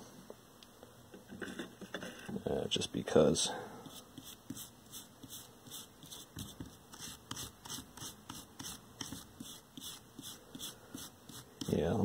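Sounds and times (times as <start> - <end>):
brush scratchy strokes: 3.8 - 12.0.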